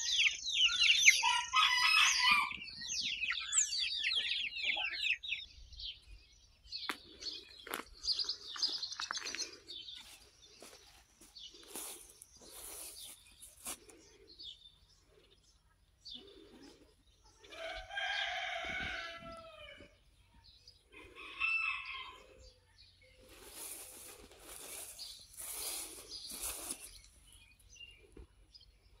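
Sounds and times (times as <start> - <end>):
rooster crowing: 1.1 - 2.6, 17.5 - 20.0, 21.0 - 22.4
swishing rustling noises: 23.3 - 27.1.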